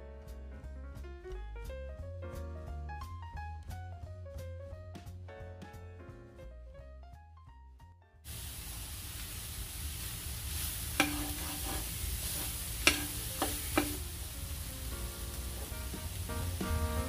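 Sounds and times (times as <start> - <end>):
food sizzling in a skillet: 8.3 - 17.0
utensil clanking against metal pan: 11.0 - 14.0.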